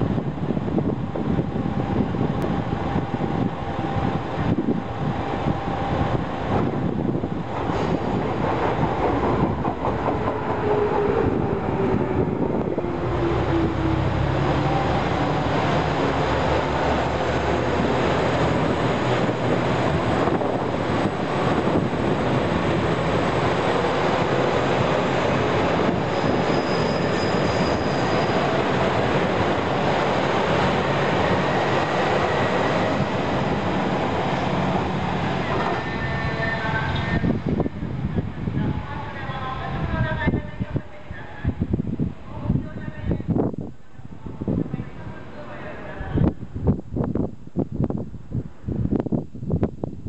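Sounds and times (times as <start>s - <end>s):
train rumbling past: 0.0s - 49.2s
faint high squeals: 26.1s - 28.5s.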